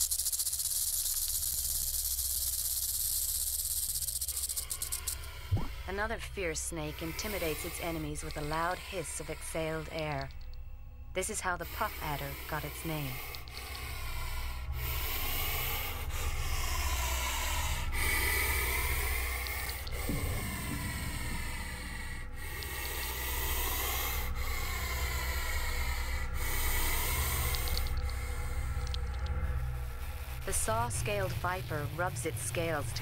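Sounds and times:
snake hissing loudly: 0:00.0 - 0:05.9, 0:06.8 - 0:09.9, 0:11.6 - 0:32.1.

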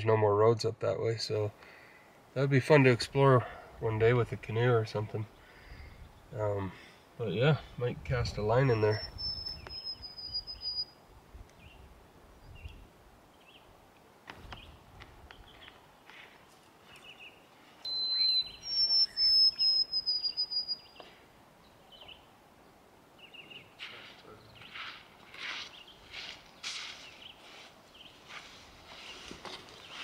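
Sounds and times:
quiet outdoor background: 0:00.0 - 0:30.0
faint bird chirps: 0:08.6 - 0:11.0, 0:16.9 - 0:22.3
songbird whistling: 0:08.7 - 0:11.0, 0:17.8 - 0:21.1.

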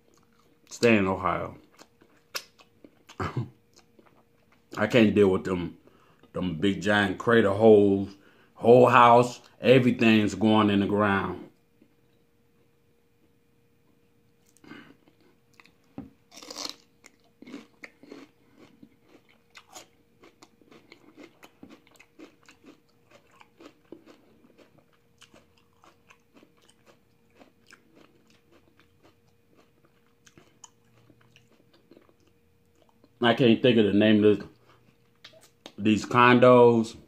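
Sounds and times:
celery crunching and chewing: 0:01.5 - 0:04.9, 0:14.4 - 0:33.2.

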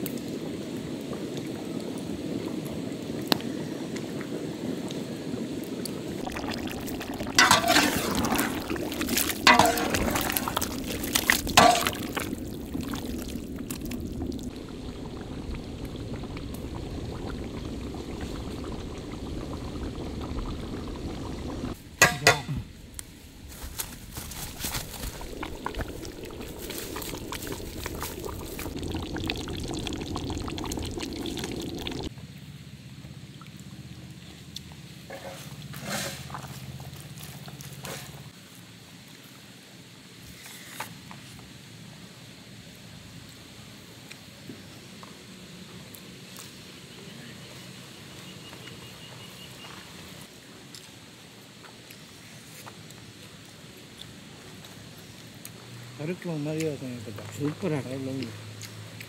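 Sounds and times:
curry bubbling in a pot: 0:05.6 - 0:22.6, 0:23.5 - 0:32.1
metal ladle clinking on pot: 0:22.0 - 0:22.6.

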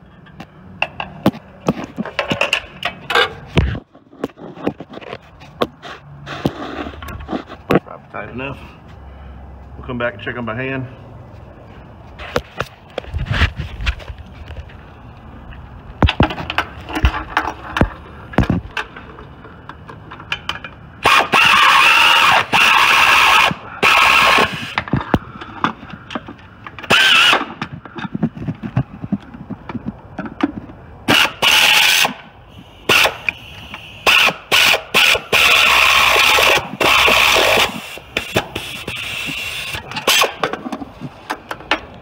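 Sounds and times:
pneumatic air ratchet: 0:21.0 - 0:28.2, 0:31.0 - 0:41.3.

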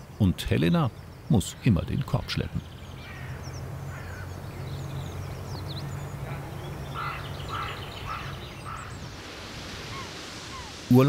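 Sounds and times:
small birds chirping: 0:00.0 - 0:11.0
bird short calls: 0:06.2 - 0:09.0, 0:09.9 - 0:10.8.

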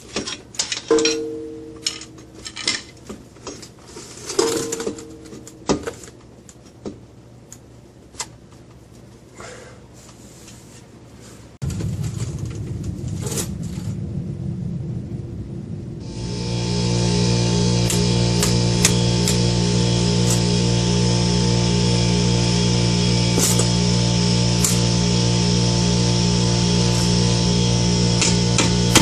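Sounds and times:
steady low hum: 0:11.6 - 0:29.0.

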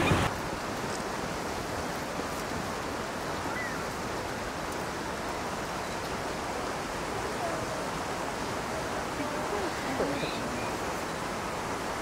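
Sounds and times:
rushing water: 0:00.0 - 0:12.0.

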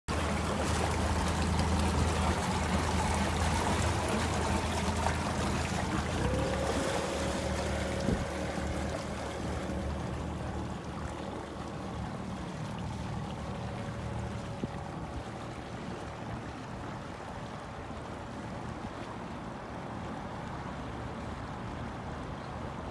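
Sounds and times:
faint steady whine: 0:00.1 - 0:18.4
ferry engine humming: 0:00.1 - 0:18.4
water churning: 0:00.1 - 0:22.9.

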